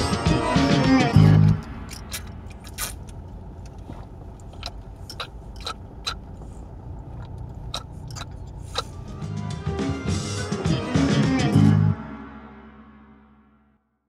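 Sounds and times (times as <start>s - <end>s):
car driving rumble inside cabin: 0.0s - 9.8s.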